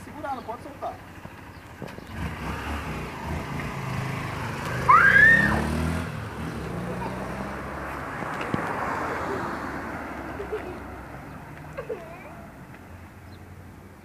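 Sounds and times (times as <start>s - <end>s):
motorcycle engine accelerating: 1.5s - 9.8s.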